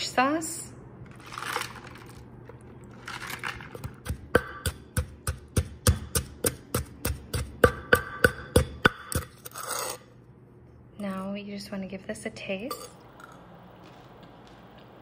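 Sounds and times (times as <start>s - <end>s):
pestle pounding in clay mortar: 3.7s - 9.4s.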